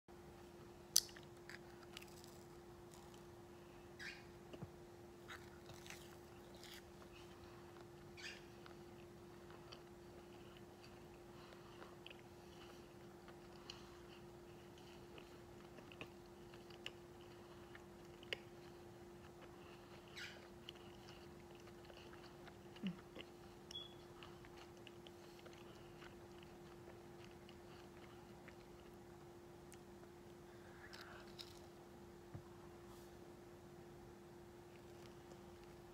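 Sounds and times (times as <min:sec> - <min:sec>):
steady low hum: 0:00.1 - 0:35.9
wet chewing: 0:05.3 - 0:29.0.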